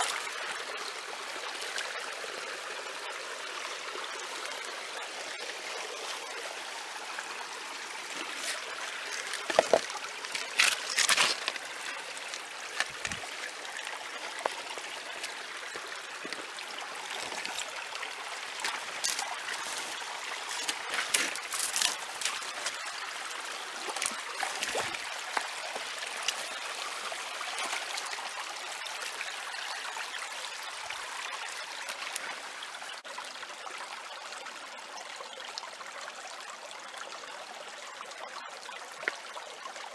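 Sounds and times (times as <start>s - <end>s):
creek trickling over rocks: 0.0s - 39.9s
crackles and knocks: 9.2s - 11.6s.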